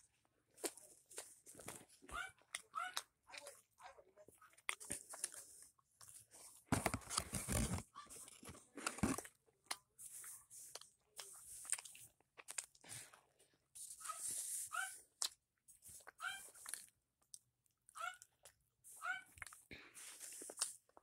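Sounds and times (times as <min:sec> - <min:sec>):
crunching and chewing food: 0:00.0 - 0:21.0.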